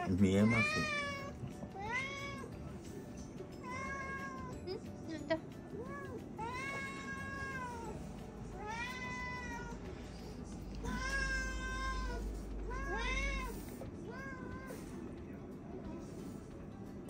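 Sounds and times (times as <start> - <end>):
cats meowing: 0.0 - 2.8, 3.6 - 4.9, 5.7 - 15.2.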